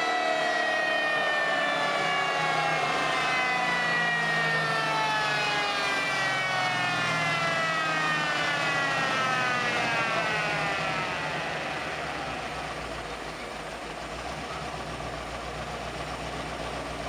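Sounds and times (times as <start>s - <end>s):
drivetrain whine spinning down: 0.0s - 17.0s.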